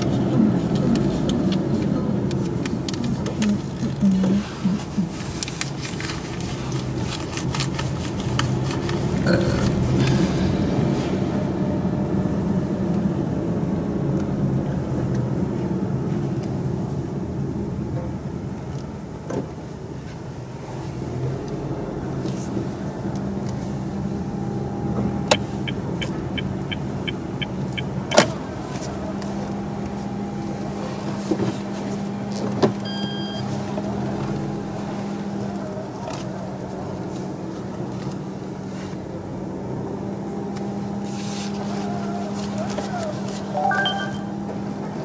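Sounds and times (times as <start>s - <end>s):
car engine and cabin hum: 0.0s - 45.0s
short electronic beep: 32.9s - 33.4s, 43.6s - 44.4s.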